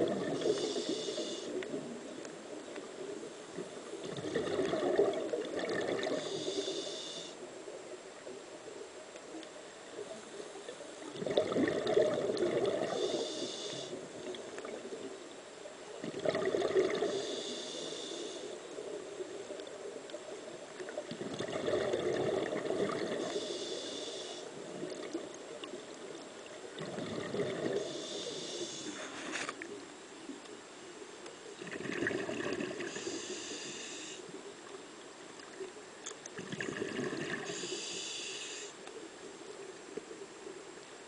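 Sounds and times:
bubbling exhaled air: 0.0s - 1.5s, 4.0s - 7.1s, 11.1s - 13.9s, 16.0s - 18.3s, 21.1s - 25.2s, 26.8s - 29.0s, 31.6s - 34.2s, 36.4s - 38.6s
diver breathing through regulator: 0.0s - 1.6s, 5.8s - 7.4s, 12.6s - 14.0s, 16.8s - 18.6s, 23.1s - 24.6s, 27.2s - 29.6s, 32.8s - 34.3s, 37.1s - 38.8s.

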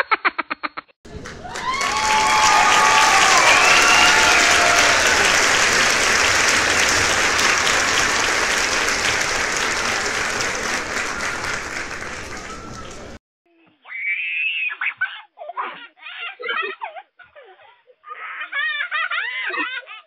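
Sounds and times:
crowd applauding: 1.1s - 13.2s.

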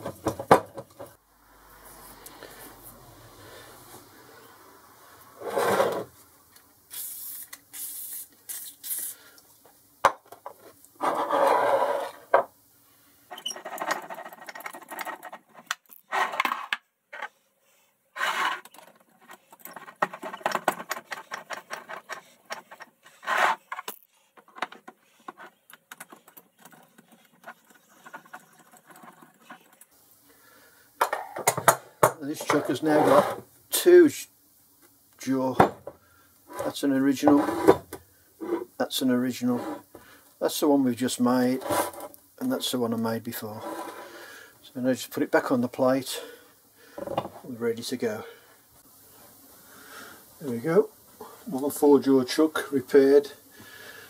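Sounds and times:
metal scraping and clicking: 13.3s - 17.3s, 18.3s - 29.9s.

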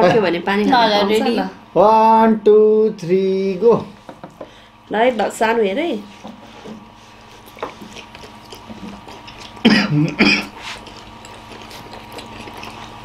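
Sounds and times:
faint chewing: 6.5s - 13.0s.

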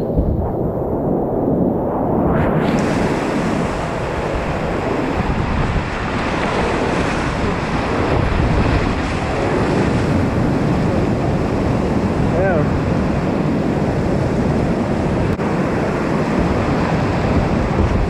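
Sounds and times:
whitewater rapids rushing: 2.7s - 11.2s.

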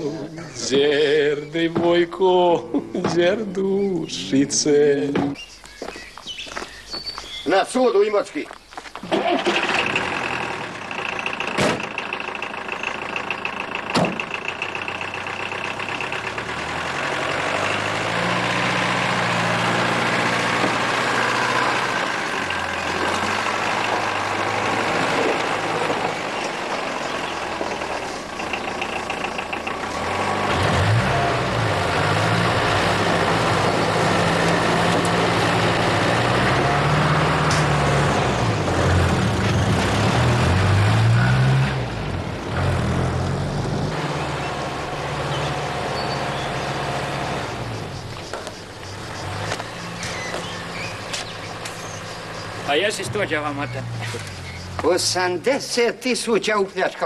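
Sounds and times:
car engine pulling away: 0.0s - 55.8s.

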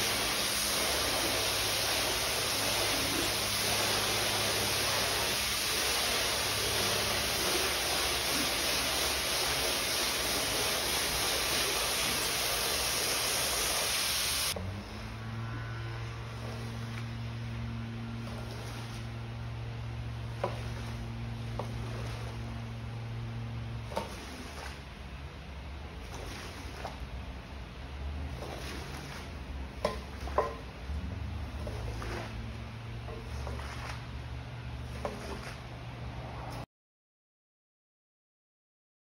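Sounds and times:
water spray hissing into rug: 0.0s - 14.6s, 18.2s - 19.1s, 20.3s - 22.8s, 23.8s - 24.9s, 26.0s - 27.2s, 28.3s - 30.6s, 31.4s - 34.1s, 34.8s - 35.6s
squeegee scraping wet rug: 0.0s - 15.2s, 16.1s - 36.7s
low steady hum: 14.5s - 36.6s.

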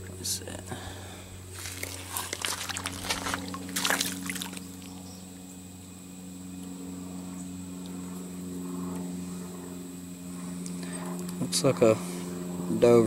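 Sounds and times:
low hum: 0.0s - 13.0s
shallow water splashing: 1.5s - 5.0s.

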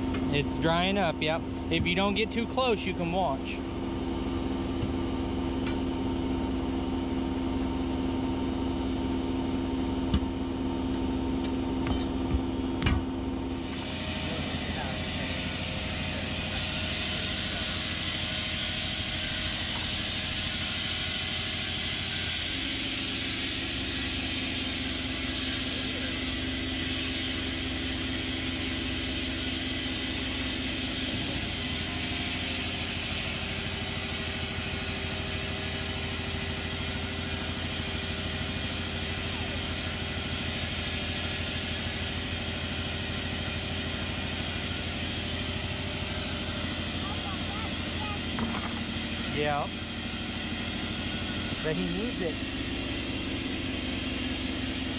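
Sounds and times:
engine idling: 0.0s - 54.9s
steady hum: 0.0s - 54.9s
hiss: 13.5s - 31.5s.

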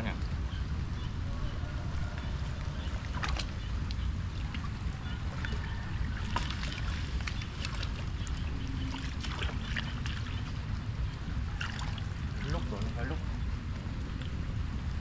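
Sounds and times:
steady low rumble: 0.0s - 15.0s
water splashing in a ditch: 3.0s - 10.6s, 11.5s - 13.0s.

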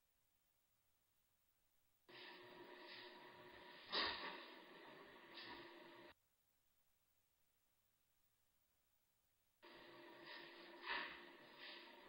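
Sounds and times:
breathy puff: 3.9s - 4.4s.

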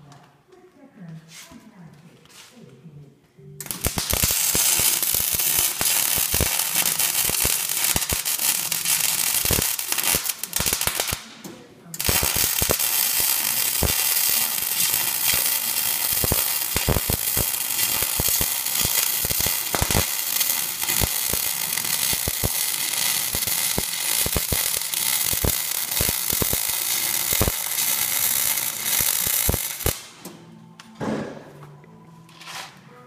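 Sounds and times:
welding spatter pops: 3.6s - 11.3s, 12.0s - 30.1s
welding arc crackling sizzle: 3.6s - 11.4s, 12.0s - 30.1s.

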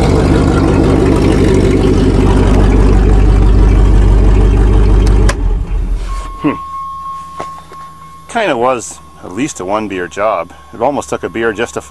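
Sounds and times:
truck engine running: 0.0s - 11.9s
ignition click: 5.0s - 5.5s.

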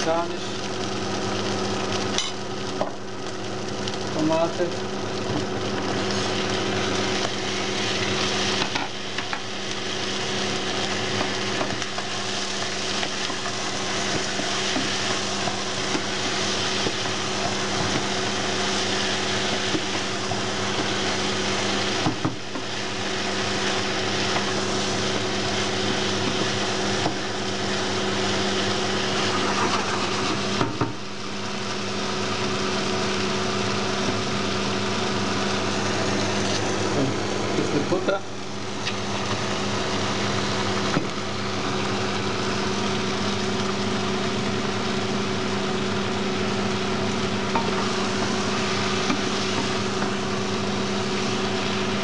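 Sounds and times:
food sizzling in a pot: 0.0s - 52.0s.

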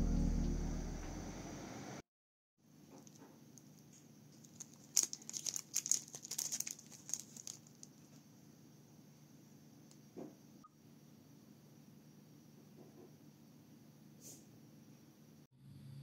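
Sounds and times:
plastic packet crinkling: 4.4s - 8.2s.

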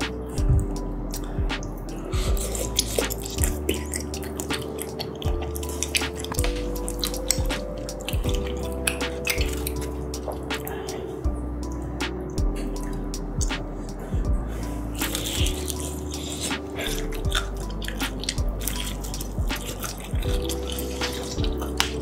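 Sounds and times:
wet chewing and mouth clicks: 0.0s - 11.1s, 14.6s - 22.0s
background music with soft beat: 0.0s - 22.0s
chopsticks in sauce: 15.0s - 22.0s.

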